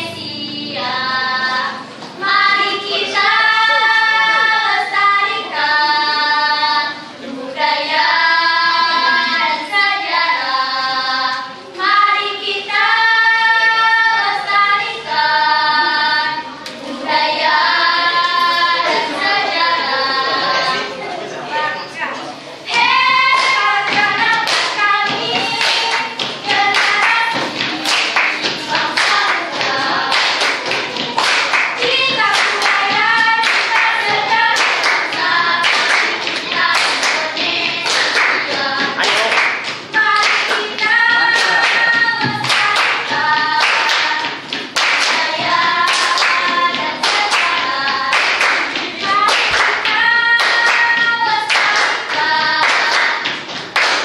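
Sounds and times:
children singing a chant: 0:00.0 - 0:21.9, 0:22.5 - 0:54.0
hands clapping: 0:22.7 - 0:54.0.

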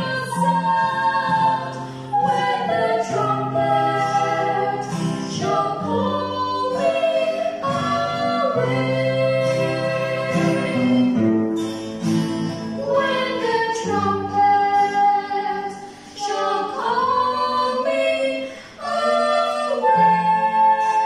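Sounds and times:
acoustic guitar: 0:00.0 - 0:21.0
people singing together: 0:00.0 - 0:21.0.

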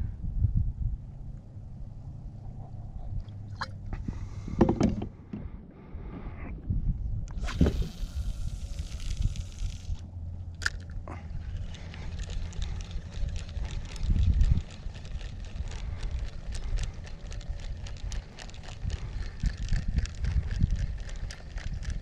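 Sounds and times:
steady low rumble: 0:00.0 - 0:22.0
hiss: 0:07.4 - 0:10.0
fine rapid clicks: 0:10.6 - 0:22.0.

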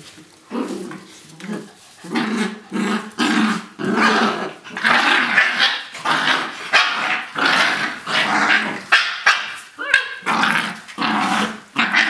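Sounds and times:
young dogs growling: 0:00.5 - 0:12.0.

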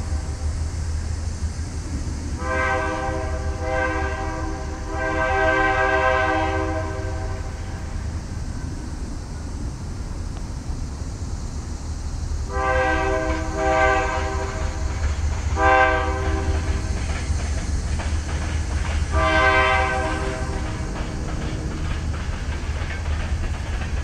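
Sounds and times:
locomotive air horn blasts: 0:02.4 - 0:07.8, 0:12.5 - 0:14.8, 0:15.6 - 0:16.9, 0:19.1 - 0:22.0
locomotives rumbling: 0:14.5 - 0:24.0.

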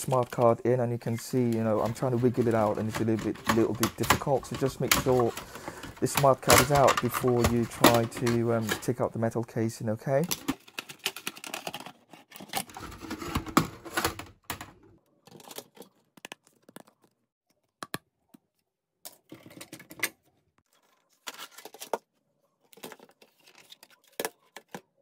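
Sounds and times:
plastic and metal casing clattering: 0:00.0 - 0:09.4, 0:10.1 - 0:17.0.

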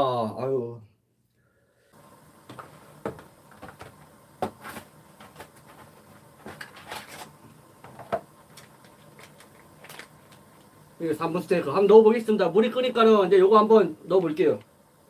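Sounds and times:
faint steady hiss: 0:00.0 - 0:15.0
packaging rustling: 0:02.6 - 0:07.4, 0:08.4 - 0:10.7.

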